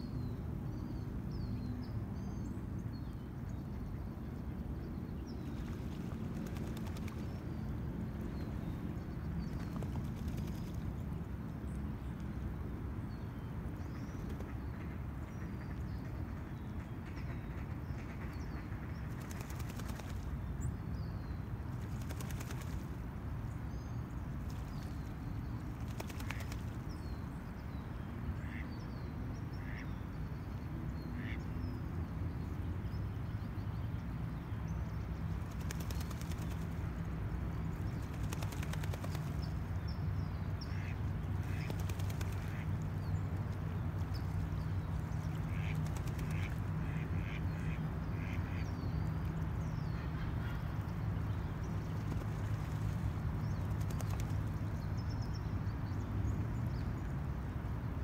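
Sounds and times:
distant traffic rumble: 0.4s - 58.0s
small birds chirping: 16.7s - 27.7s, 28.4s - 29.0s, 29.6s - 30.1s, 31.1s - 31.4s, 34.7s - 55.6s
ducks quacking: 45.5s - 48.6s.

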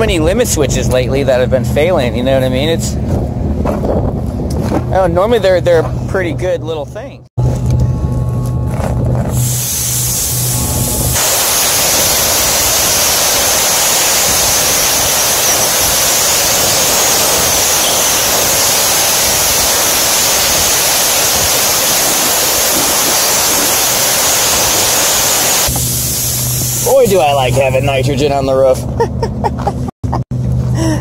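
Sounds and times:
gas rushing in loud hiss: 9.3s - 28.1s.

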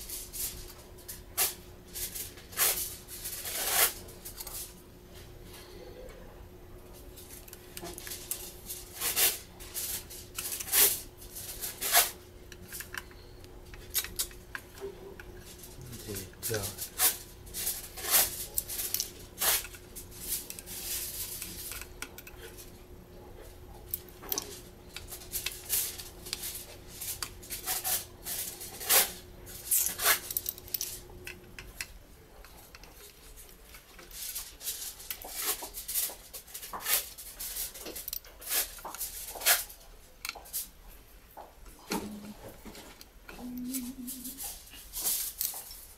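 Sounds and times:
faint steady hum: 0.0s - 45.9s
metal tools clicking and tapping: 12.5s - 15.5s, 21.3s - 22.6s, 29.7s - 34.1s.

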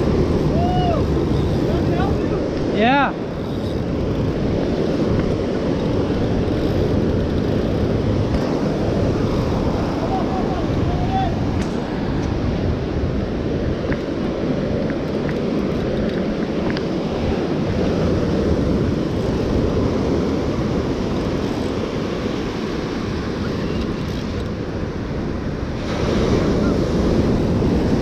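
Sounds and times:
surf breaking over rocks: 0.0s - 7.2s
wind buffeting microphone: 0.0s - 28.0s.

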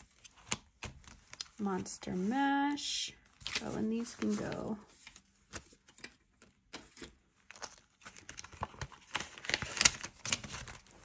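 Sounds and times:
paper banknotes rustling: 3.3s - 11.0s.

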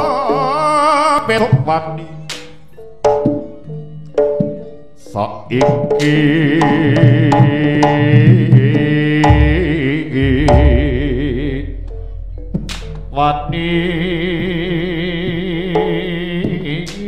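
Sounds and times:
wavering melody with vibrato: 6.2s - 16.8s
hand drum strokes: 7.0s - 17.0s
deep boom: 9.3s - 15.2s.

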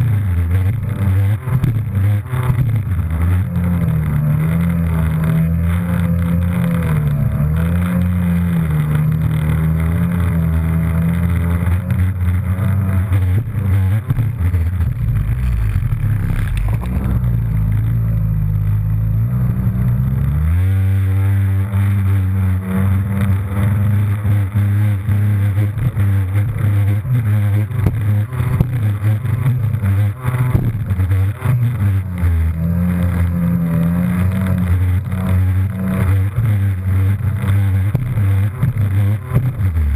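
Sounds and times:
jet ski engine revving: 0.0s - 39.9s.

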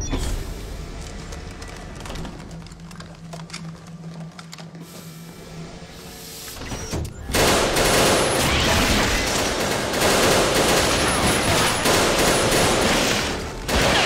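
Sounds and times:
rapid automatic gunfire: 7.3s - 14.0s.

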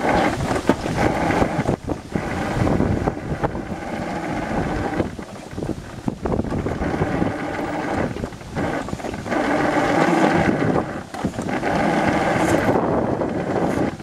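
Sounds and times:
sled wheels rumbling on track: 0.0s - 14.0s
wind on microphone: 0.0s - 14.0s.

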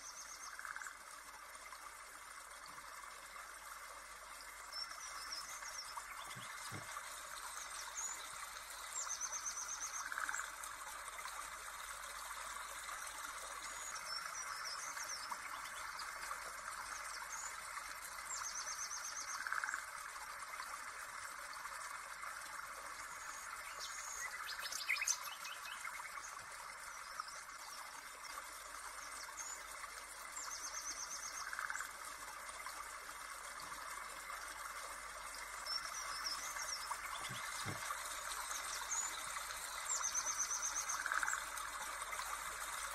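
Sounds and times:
water rushing: 35.2s - 42.9s
birds chirping and trilling: 35.6s - 41.4s.

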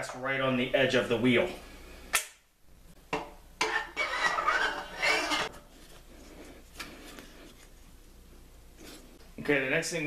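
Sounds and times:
metal clattering and scraping: 3.6s - 5.7s.

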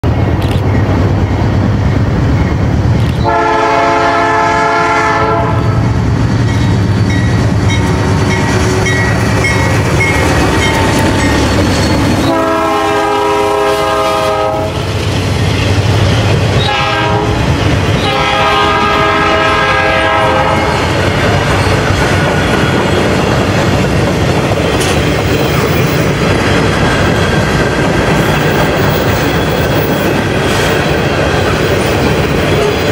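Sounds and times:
diesel locomotive passing: 0.0s - 32.9s
multi-tone train horn: 3.2s - 6.0s, 12.2s - 15.0s, 16.6s - 21.5s
train wheels clacking over rail joints: 6.0s - 32.9s.

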